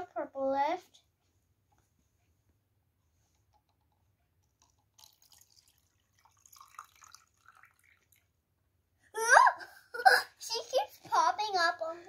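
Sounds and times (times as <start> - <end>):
water splashing into jar: 4.5 - 8.3.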